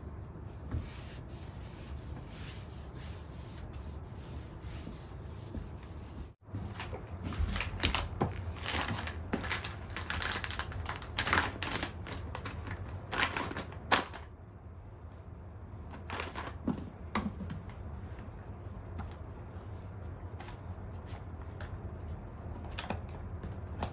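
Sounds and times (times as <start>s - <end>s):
paper and plastic rustling: 6.5s - 14.3s.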